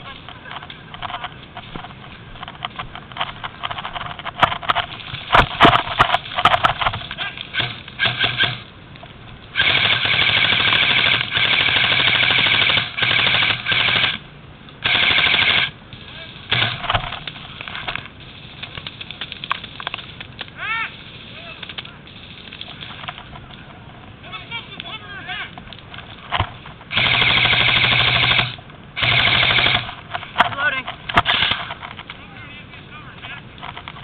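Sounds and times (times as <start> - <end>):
rustling: 0.0 - 34.0
airsoft rifle full-auto bursts: 7.5 - 8.6, 9.6 - 14.2, 14.8 - 15.8, 16.5 - 17.0, 26.9 - 30.0, 31.2 - 31.7.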